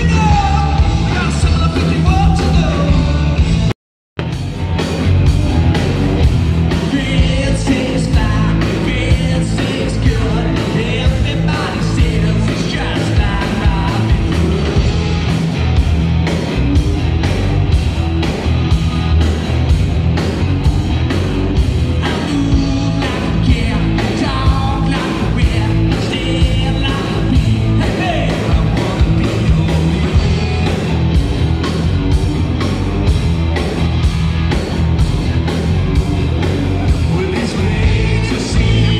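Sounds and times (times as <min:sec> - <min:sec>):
bass guitar: 0:00.0 - 0:38.9
drum kit steady beat: 0:00.0 - 0:38.9
electric guitars: 0:00.0 - 0:38.9
person singing: 0:37.0 - 0:38.9.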